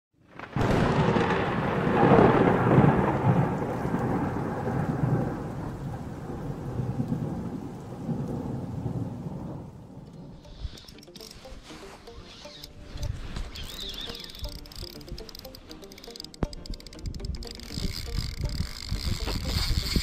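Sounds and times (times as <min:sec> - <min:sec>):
rain: 0:00.2 - 0:10.9
rolling thunder: 0:00.3 - 0:10.4.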